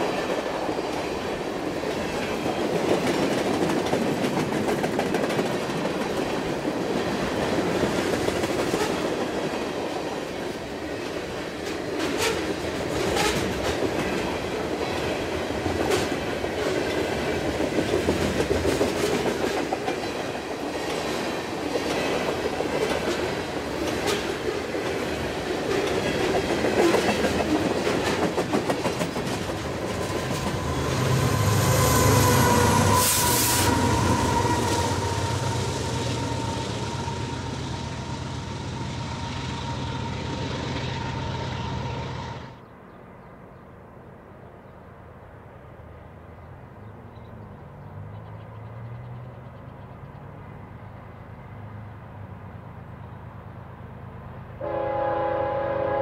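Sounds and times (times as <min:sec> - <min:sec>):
train cars rolling past: 0:00.0 - 0:42.6
wheels clacking over rail joints: 0:11.0 - 0:31.5.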